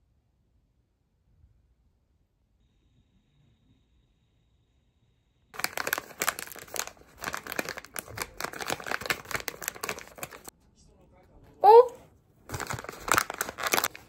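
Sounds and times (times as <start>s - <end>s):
plastic wrapper crinkling: 5.6s - 10.5s, 12.5s - 14.0s.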